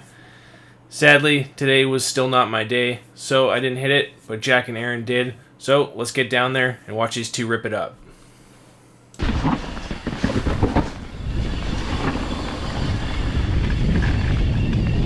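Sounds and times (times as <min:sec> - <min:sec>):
bike tyres rumbling on dirt trail: 0:09.2 - 0:15.0.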